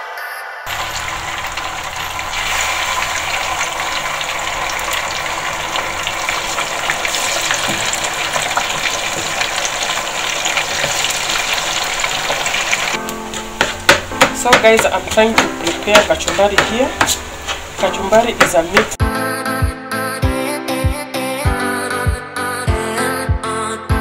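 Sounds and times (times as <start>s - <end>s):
deep-frying sizzle with crackles: 0.7s - 18.8s.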